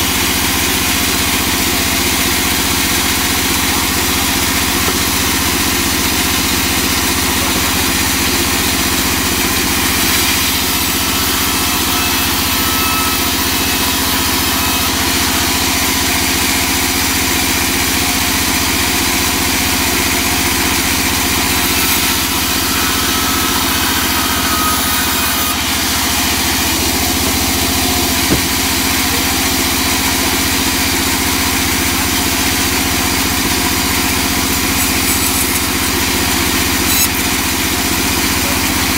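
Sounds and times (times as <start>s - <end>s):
band saw cutting wood: 0.0s - 38.9s
sharp knock: 28.1s - 28.8s.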